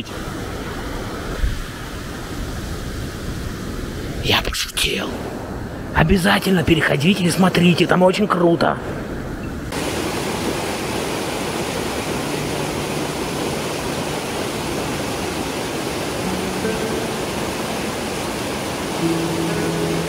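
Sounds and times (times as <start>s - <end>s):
waterfall rushing: 9.7s - 20.0s.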